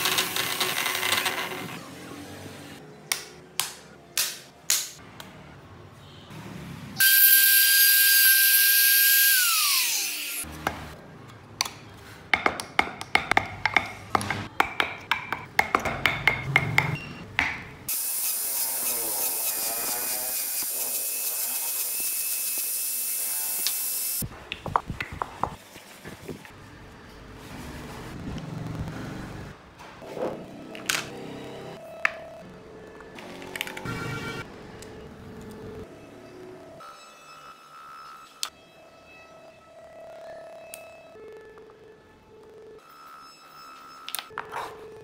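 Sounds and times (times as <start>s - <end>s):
power tool whining: 7.0s - 10.5s.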